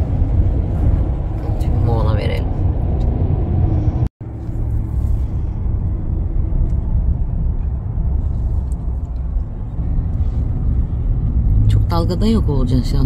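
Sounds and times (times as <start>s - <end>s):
road and engine rumble in car: 0.0s - 13.0s.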